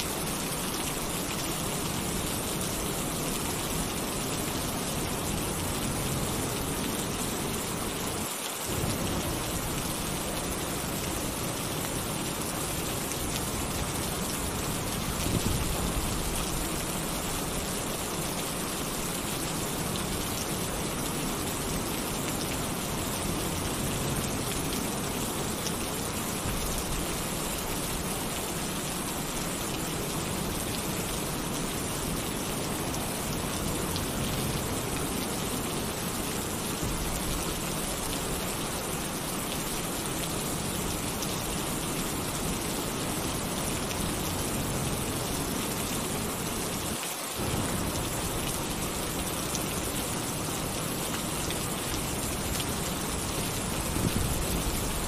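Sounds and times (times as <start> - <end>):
heavy rain on a tin roof: 0.0 - 55.0
low thunder rumble: 47.4 - 48.4.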